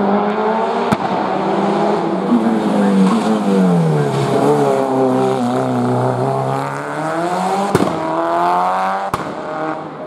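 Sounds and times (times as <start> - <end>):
car engine revving: 0.0 - 10.0
sharp crack: 7.7 - 8.1, 9.1 - 9.5.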